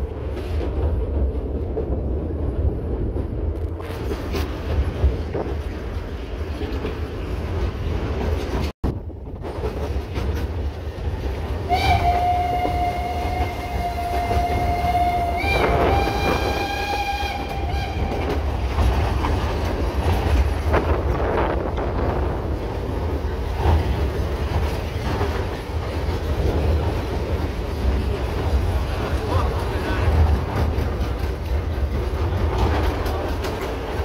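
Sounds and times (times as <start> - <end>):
train rumbling: 0.0 - 34.0
steam locomotive whistle blasts: 11.7 - 18.4.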